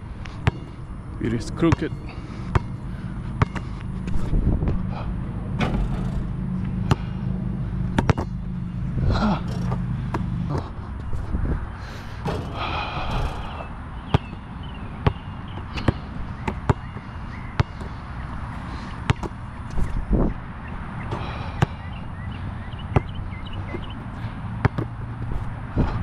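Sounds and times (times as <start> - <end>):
steady low rumble: 0.0 - 26.0
basketball bouncing on court: 0.4 - 0.8, 1.7 - 2.8, 3.4 - 4.2, 6.8 - 7.2, 7.9 - 8.4, 9.4 - 10.7, 13.2 - 18.0, 19.0 - 19.9, 21.0 - 25.9.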